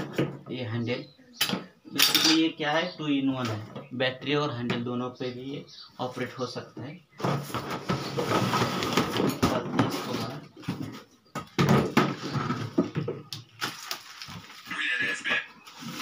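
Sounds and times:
cardboard rustling: 0:13.5 - 0:14.7, 0:15.6 - 0:16.0.

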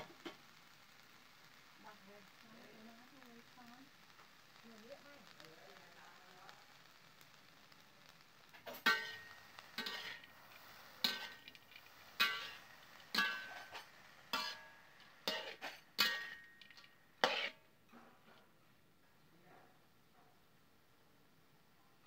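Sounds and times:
metal spatula scraping metal pan: 0:08.6 - 0:18.5.

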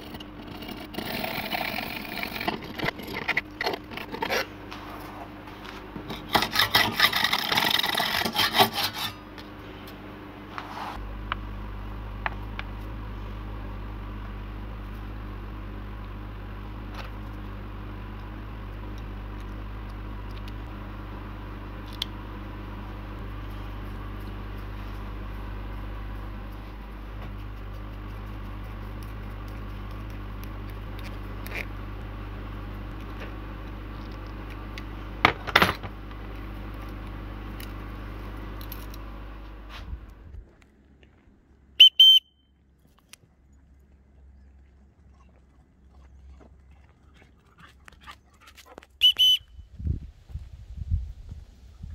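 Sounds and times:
clatter: 0:00.0 - 0:04.5
steady low hum: 0:00.0 - 0:51.9
high whistle blasts: 0:41.8 - 0:42.5, 0:49.0 - 0:49.7.

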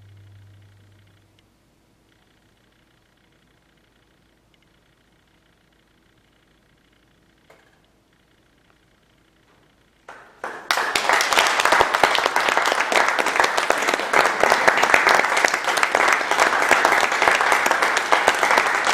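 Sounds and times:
audience clapping: 0:10.1 - 0:18.9.

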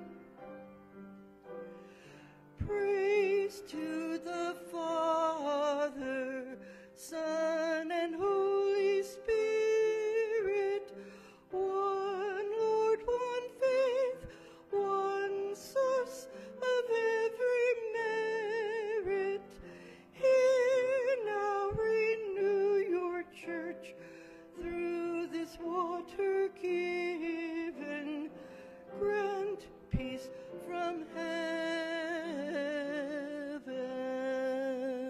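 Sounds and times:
person singing a hymn: 0:01.7 - 0:35.0.

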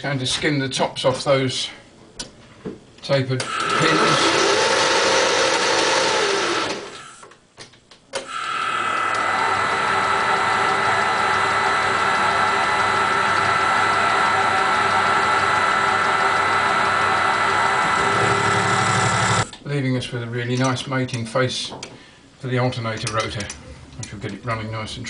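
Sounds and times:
metal lathe whining: 0:03.4 - 0:07.2, 0:08.2 - 0:19.5.

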